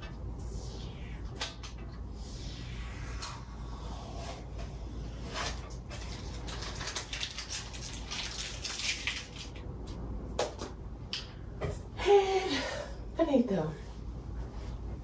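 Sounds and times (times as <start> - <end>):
rustling and scraping of handling: 4.4 - 9.5.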